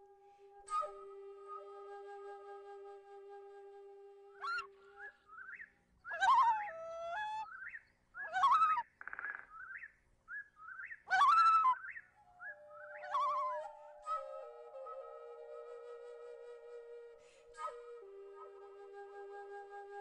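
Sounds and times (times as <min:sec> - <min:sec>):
flute note: 0:00.0 - 0:05.1, 0:12.4 - 0:20.0
birds whistling and chirping: 0:04.4 - 0:15.9.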